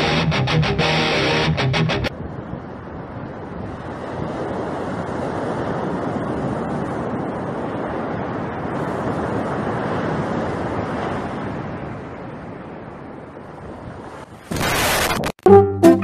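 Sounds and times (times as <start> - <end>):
waves breaking on sand: 2.7 - 15.2.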